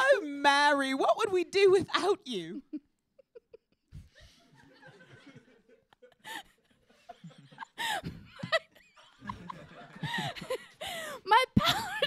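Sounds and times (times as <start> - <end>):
people laughing: 2.7 - 11.0.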